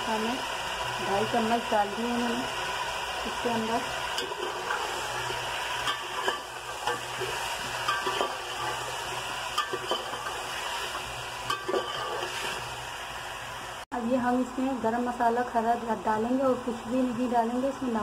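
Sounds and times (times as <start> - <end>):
chicken sizzling in oil: 0.0 - 13.8
metal spoon scraping a pot: 4.2 - 10.4, 11.5 - 12.6.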